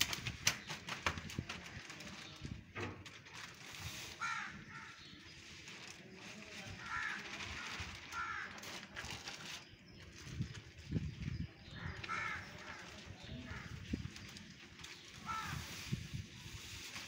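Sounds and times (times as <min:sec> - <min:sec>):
crow cawing: 0:04.2 - 0:05.0, 0:08.1 - 0:08.6, 0:11.8 - 0:12.9, 0:15.2 - 0:15.7.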